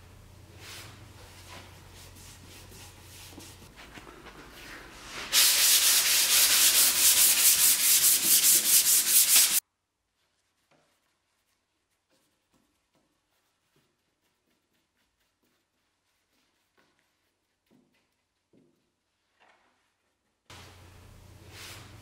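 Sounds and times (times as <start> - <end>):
sandpaper sanding wood: 5.3 - 9.6, 11.4 - 18.1.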